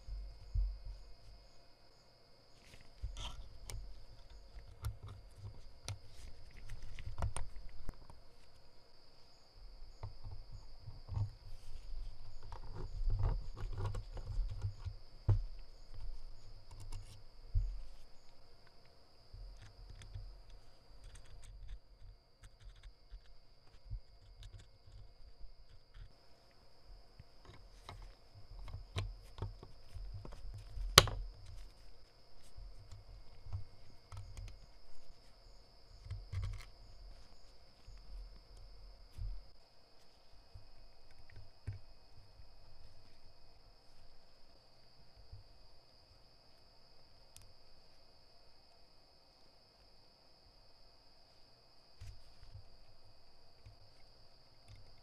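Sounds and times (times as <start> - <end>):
soft low knocks: 0.0 - 1.4
light clicks and taps: 2.6 - 8.6.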